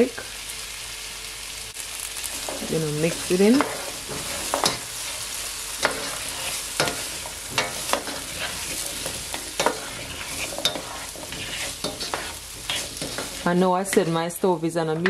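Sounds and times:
potatoes sizzling in oil: 0.0 - 15.0
utensil scraping a pot: 2.4 - 5.2, 5.8 - 14.2.

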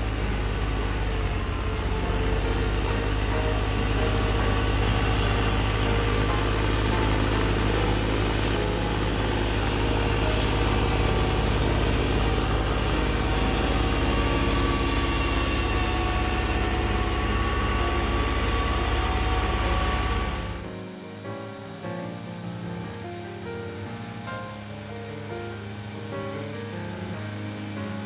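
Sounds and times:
tractor diesel engine under load: 0.0 - 20.7
steady high whine: 0.0 - 28.0.

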